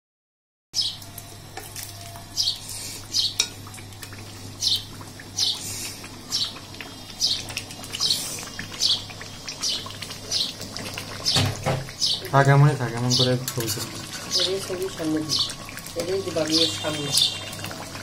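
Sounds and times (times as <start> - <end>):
bird chirping: 12.0 - 12.3.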